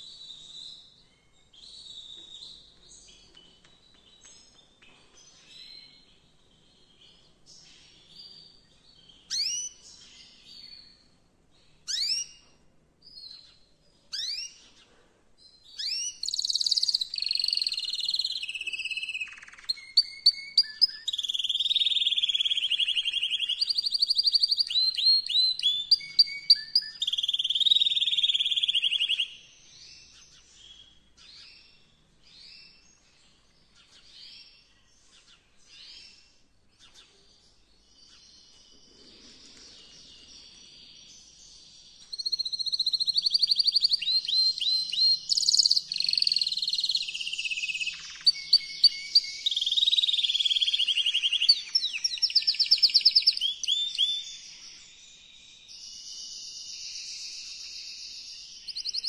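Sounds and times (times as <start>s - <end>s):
canary singing trills: 4.7s - 11.2s, 11.8s - 12.4s, 13.1s - 14.8s, 15.6s - 32.8s, 38.1s - 59.0s.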